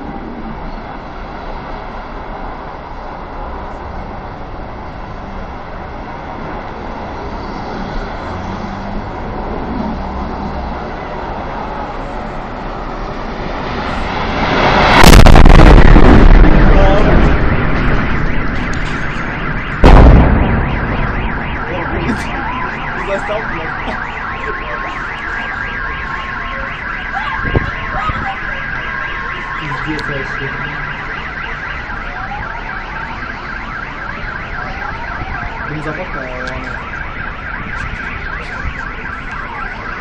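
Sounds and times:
rumbling explosion blast: 13.5s - 24.2s
sharp boom: 14.2s - 24.3s
car alarms: 14.8s - 40.0s.

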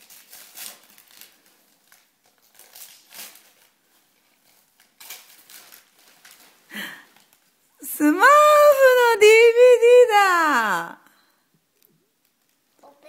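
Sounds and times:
wrapping paper rustling and tearing: 0.0s - 7.6s.

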